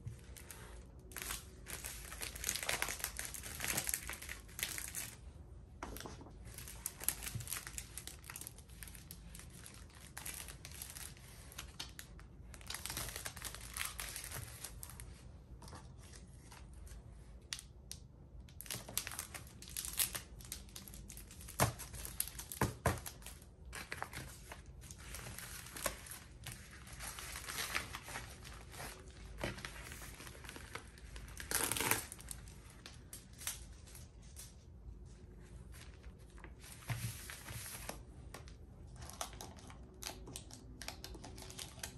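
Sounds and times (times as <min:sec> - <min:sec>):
paper and plastic rustling: 0:18.6 - 0:41.9.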